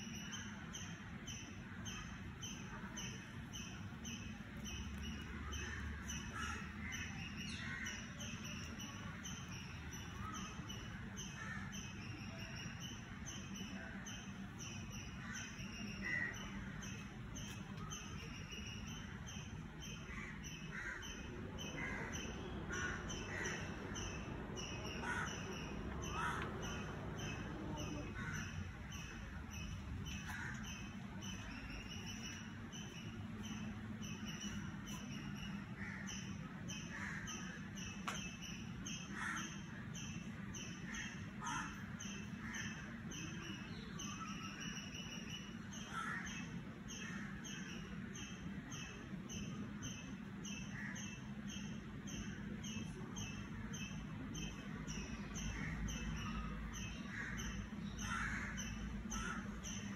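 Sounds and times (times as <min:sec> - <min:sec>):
birds calling: 0:00.0 - 0:59.9.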